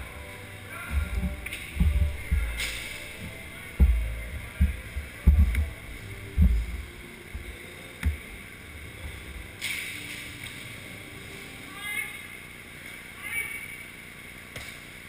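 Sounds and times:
muffled low thumps: 0.8s - 8.4s.

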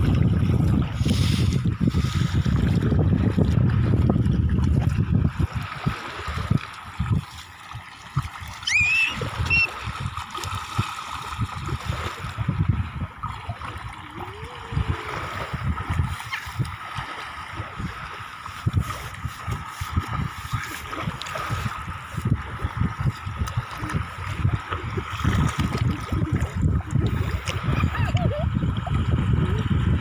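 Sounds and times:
seawater splashing: 0.0s - 30.0s
wind buffeting microphone: 0.0s - 30.0s
brief high squeak: 8.7s - 9.7s.

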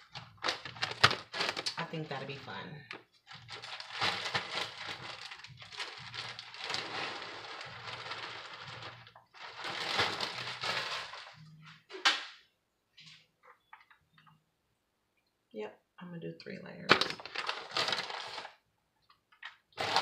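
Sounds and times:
plastic bag crinkling: 0.0s - 11.8s, 16.8s - 20.0s.

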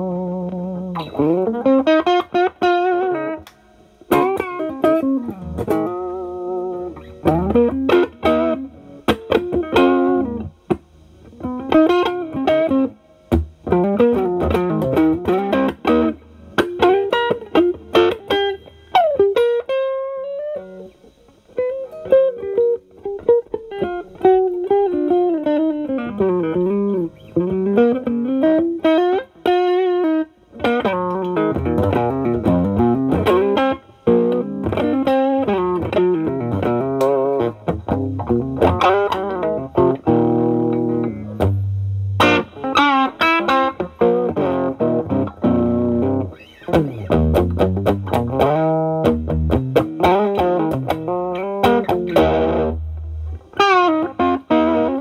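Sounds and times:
overdriven electric guitar lead: 0.0s - 55.0s.

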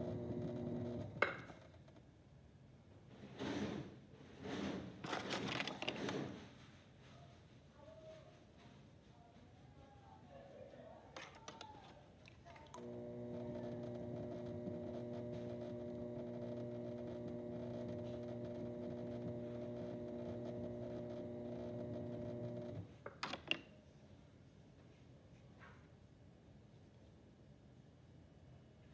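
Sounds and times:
pottery wheel motor humming: 0.0s - 1.5s, 12.8s - 22.9s.

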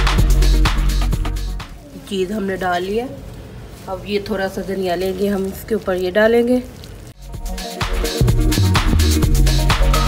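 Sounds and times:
music with steady beat: 0.0s - 1.8s, 7.2s - 10.0s.

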